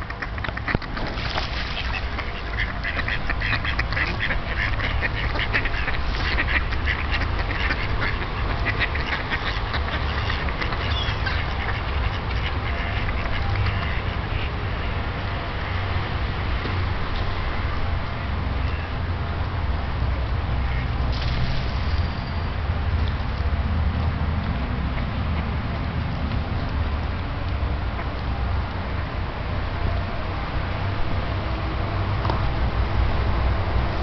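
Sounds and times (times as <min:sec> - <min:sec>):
mallards quacking: 0:00.0 - 0:15.0, 0:20.6 - 0:20.9.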